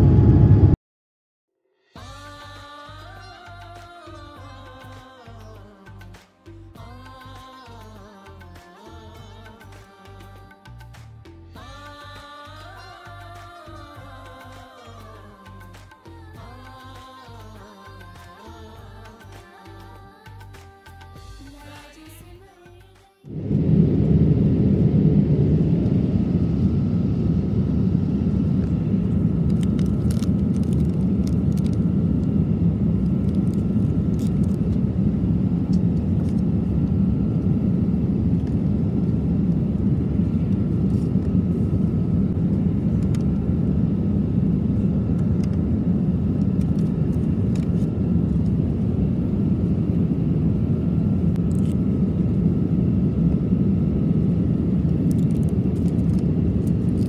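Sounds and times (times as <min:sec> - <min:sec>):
airliner cabin noise: 0:00.0 - 0:00.8, 0:23.3 - 0:57.0.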